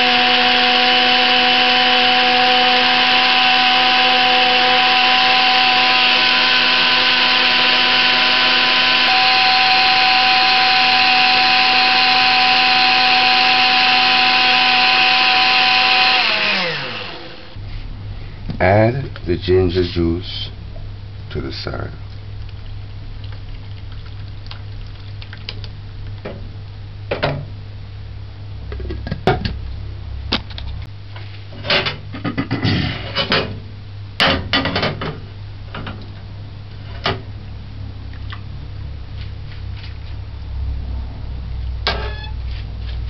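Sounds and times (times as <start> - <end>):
liquid pouring: 22.0 - 25.8.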